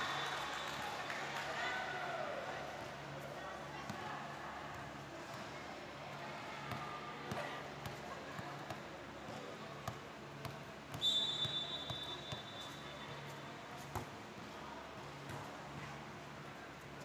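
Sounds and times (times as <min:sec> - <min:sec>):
faint voices in a hall: 0:00.0 - 0:17.0
referee's whistle blast: 0:11.0 - 0:12.9.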